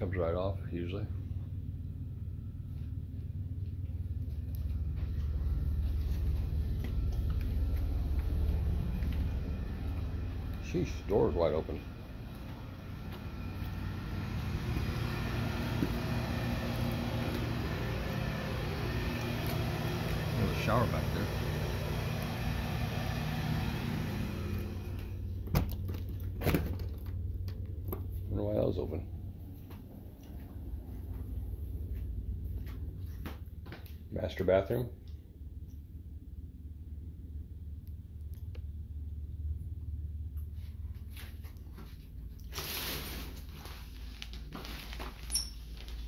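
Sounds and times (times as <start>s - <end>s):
low steady rumble: 0.0s - 46.0s
mechanical hum: 0.0s - 46.0s
shower curtain rustling swishes: 42.4s - 46.0s.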